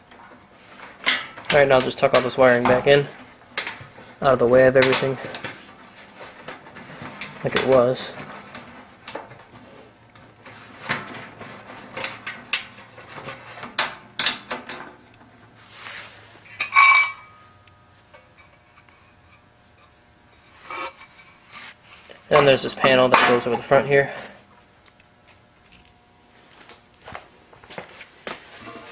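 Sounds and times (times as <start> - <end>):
wiring rustling against sheet metal: 0.0 - 17.3
ringing metal clank: 16.6 - 17.6.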